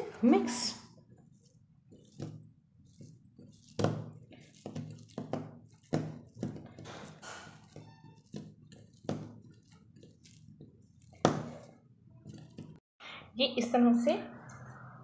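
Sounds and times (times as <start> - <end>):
sticky mixture squishing in bowl: 0.0 - 12.8.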